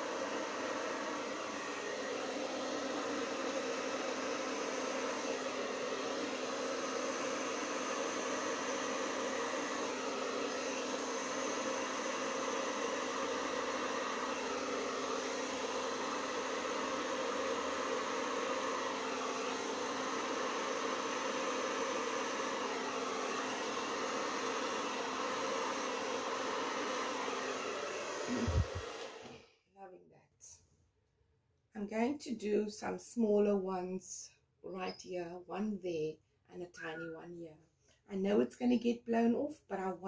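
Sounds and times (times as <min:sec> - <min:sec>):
hair dryer running: 0:00.0 - 0:29.5.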